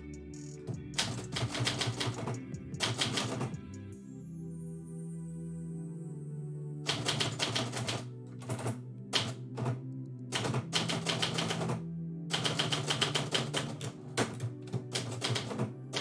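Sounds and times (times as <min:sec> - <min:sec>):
background music with low tones: 0:00.0 - 0:16.0
typewriter keystrokes: 0:01.0 - 0:03.6, 0:06.9 - 0:16.0.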